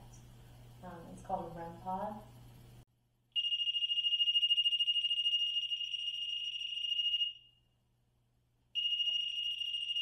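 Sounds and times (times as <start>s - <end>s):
high electronic alarm tone: 3.4s - 7.6s, 8.8s - 10.0s.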